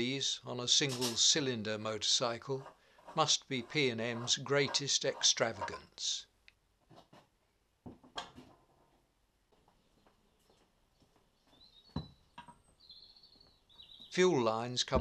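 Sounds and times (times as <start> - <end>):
bird chirping: 9.8 - 14.6.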